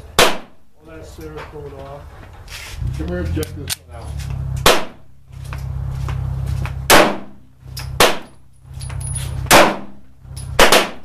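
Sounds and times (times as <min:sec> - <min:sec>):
pistol shots: 0:00.2 - 0:00.6, 0:04.6 - 0:05.0, 0:06.9 - 0:08.4, 0:09.5 - 0:10.0, 0:10.6 - 0:11.0
low rumble: 0:02.0 - 0:10.6.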